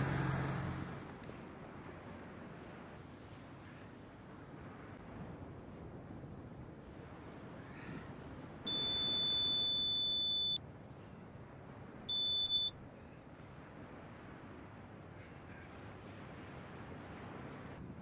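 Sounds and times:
low surf noise: 0.0s - 18.0s
pinpointer electronic tone: 8.7s - 10.6s, 12.1s - 12.7s.

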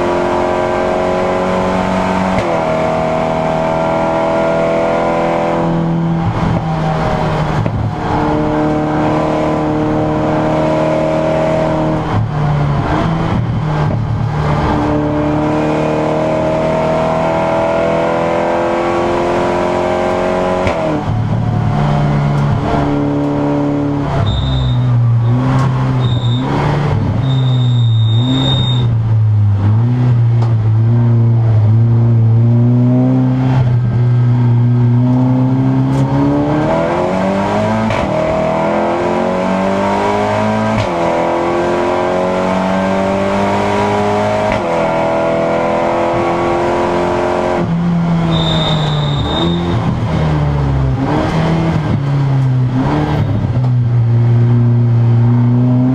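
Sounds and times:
race car engine revving: 0.0s - 55.9s
short high electronic beeps: 24.2s - 24.9s, 27.2s - 28.9s, 48.3s - 49.7s.

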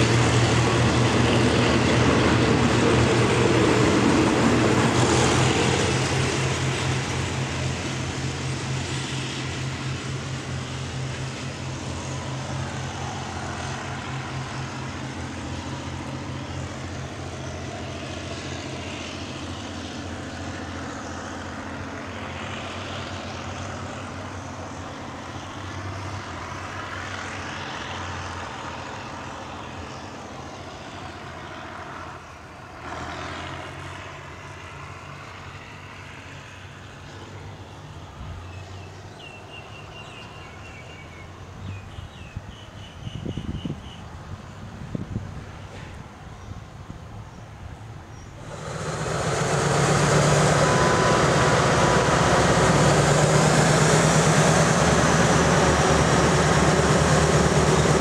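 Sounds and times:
train wheels rumbling on rails: 0.0s - 37.6s, 47.0s - 58.0s
low hum: 48.4s - 58.0s.

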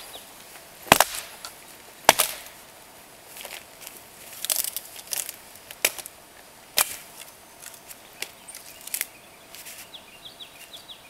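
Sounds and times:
bird chirping: 7.3s - 11.0s.

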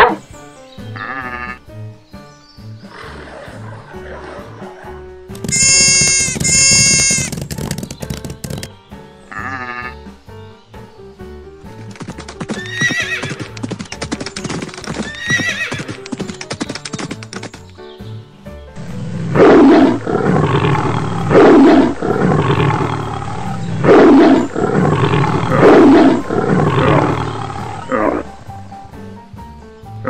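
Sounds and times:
galloping hoofbeats: 5.3s - 8.8s, 11.6s - 17.8s
cartoon music: 5.4s - 7.4s
horse whinnying: 5.5s - 7.4s, 12.5s - 13.6s, 14.9s - 16.0s
big cat roaring: 18.8s - 28.4s.

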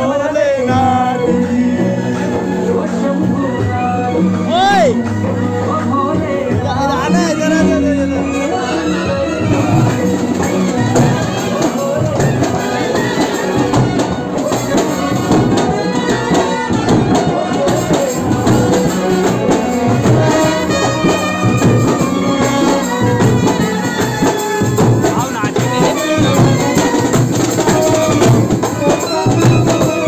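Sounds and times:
brass band playing: 0.0s - 30.0s
percussion strokes: 7.1s - 30.0s
trumpets: 7.1s - 30.0s
bass drum beaten: 9.1s - 30.0s.

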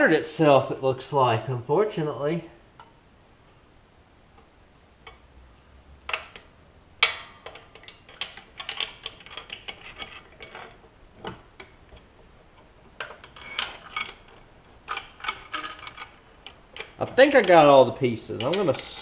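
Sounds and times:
small metallic clicks and clinks: 13.0s - 17.6s, 18.3s - 19.0s.

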